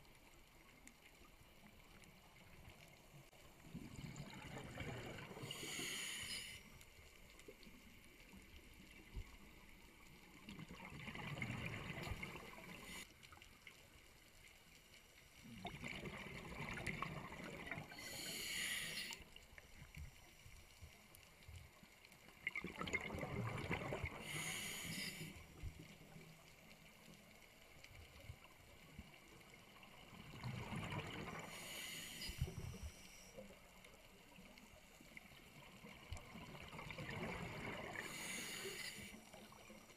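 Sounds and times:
bubbling and hiss: 2.3 - 13.4, 15.4 - 20.4, 22.3 - 27.0, 28.4 - 39.9
diver breathing through regulator: 5.3 - 6.7, 17.9 - 19.2, 24.2 - 25.4, 31.3 - 33.4, 37.9 - 39.2.

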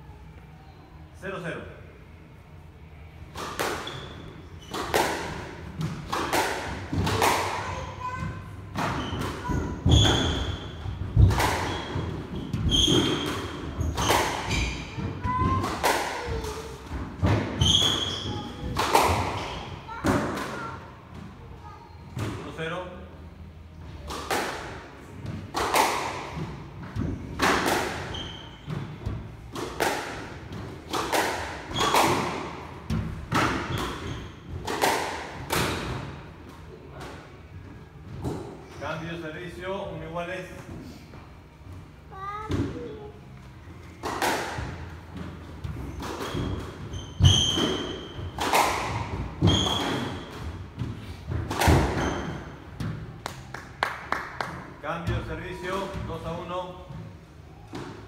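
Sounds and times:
shoes squeaking on court floor: 3.8 - 4.9, 11.6 - 15.0, 17.6 - 18.7, 28.0 - 29.0, 45.7 - 48.4, 49.4 - 50.4, 51.9 - 52.7
squash ball hits echoing: 4.7 - 20.6, 24.1 - 36.1, 44.0 - 53.5.

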